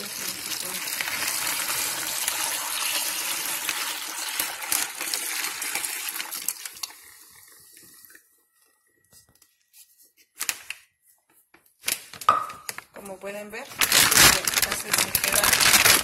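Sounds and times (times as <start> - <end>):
liquid pouring into plastic bag: 0.0 - 8.7, 13.7 - 16.0.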